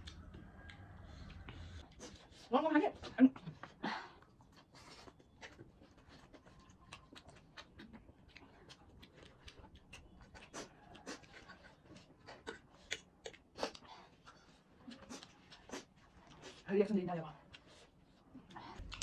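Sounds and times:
mouth clicks and smacks: 0.0s - 2.2s, 4.6s - 16.4s, 18.5s - 19.0s
chewing: 0.0s - 16.7s, 17.4s - 19.0s.

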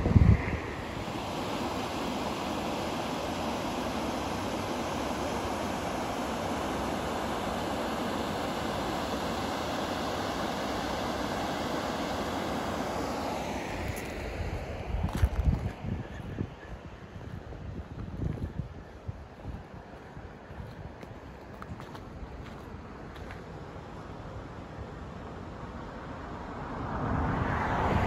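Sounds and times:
wind rumble on microphone: 0.0s - 1.2s, 13.7s - 23.5s, 26.0s - 28.0s.

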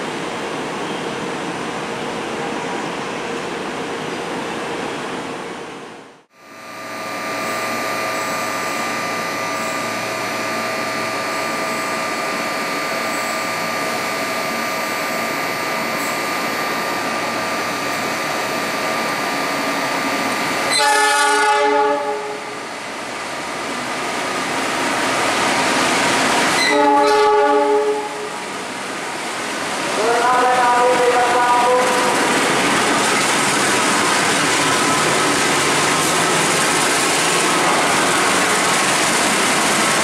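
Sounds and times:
train running rumble: 6.7s - 40.0s
locomotive horn blasts: 20.7s - 22.5s, 26.6s - 28.4s.

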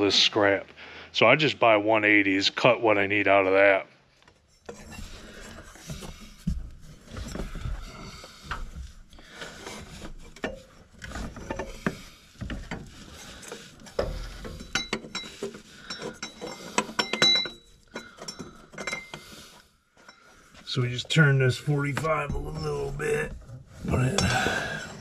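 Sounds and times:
metal exhaust pipe clinking: 9.6s - 20.8s
ringing metallic clinks: 14.6s - 19.2s.

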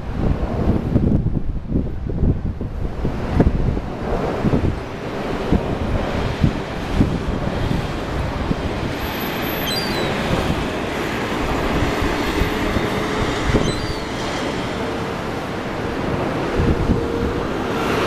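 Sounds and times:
wind on microphone: 0.0s - 18.0s
ocean surf breaking: 2.8s - 18.0s
faint high chirps: 9.5s - 10.2s, 13.6s - 14.2s.

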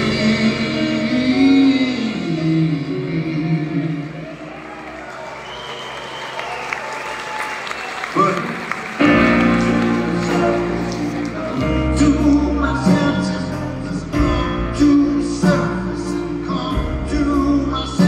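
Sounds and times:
live band playing: 0.0s - 5.4s, 8.8s - 18.0s
piano: 0.0s - 7.7s, 8.4s - 18.0s
bass line: 9.2s - 18.0s.

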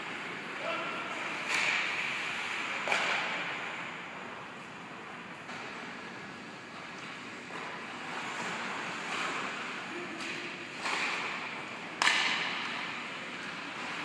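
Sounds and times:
skates scraping on ice: 5.0s - 14.0s
sharp crack: 12.0s - 12.8s.

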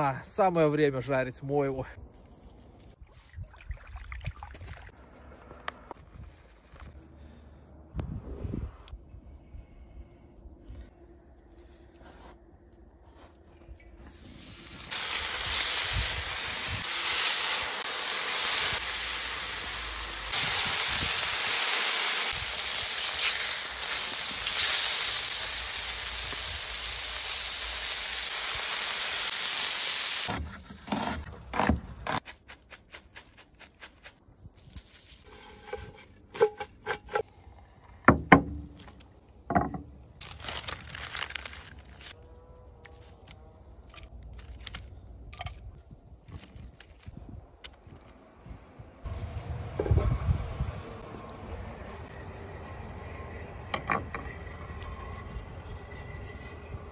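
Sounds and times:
fish frying in hot oil: 14.2s - 30.3s
paper crinkling: 40.2s - 42.2s, 42.8s - 45.6s, 46.2s - 47.2s.

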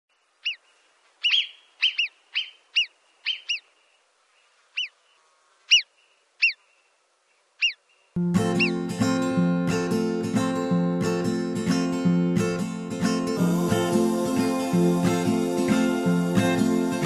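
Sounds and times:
bird calling high notes: 1.2s - 3.7s, 8.4s - 8.9s
strummed acoustic guitar: 8.2s - 17.0s.

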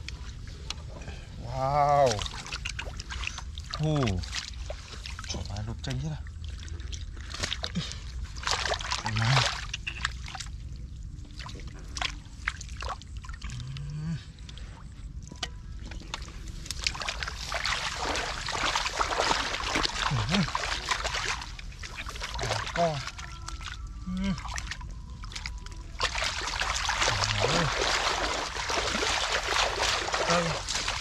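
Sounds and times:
hands splashing in muddy water: 1.9s - 5.5s, 6.4s - 10.5s, 16.1s - 31.0s.

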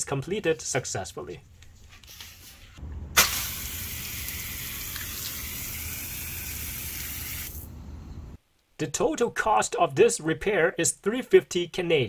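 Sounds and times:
hose nozzle spraying water: 3.2s - 7.7s.

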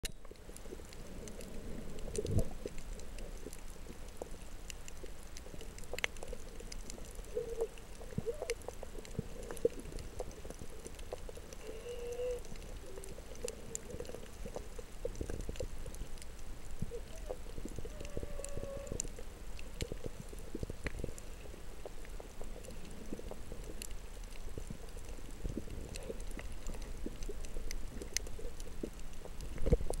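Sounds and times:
faint underwater clicks and crackles: 0.0s - 30.0s
low underwater rumble: 6.2s - 30.0s.

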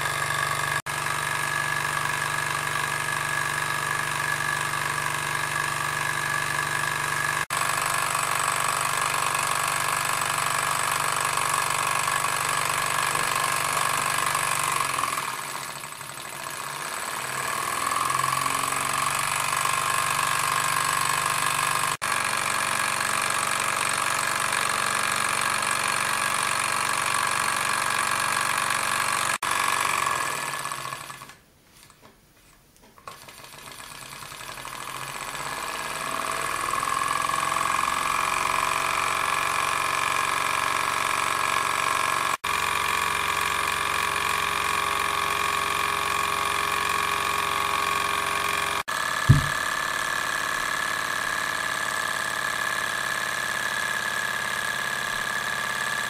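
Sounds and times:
engine model mechanical whir: 0.0s - 31.4s, 33.1s - 56.0s
sharp thump: 49.3s - 49.6s.

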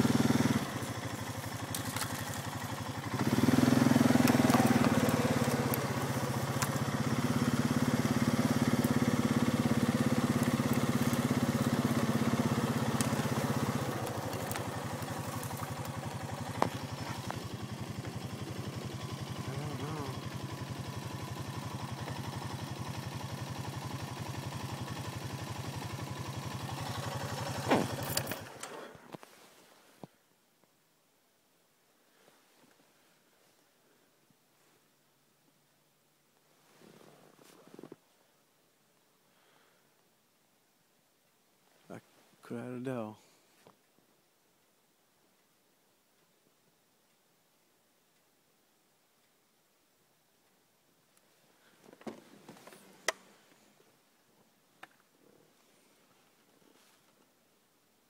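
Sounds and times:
quad engine running: 0.0s - 29.1s.

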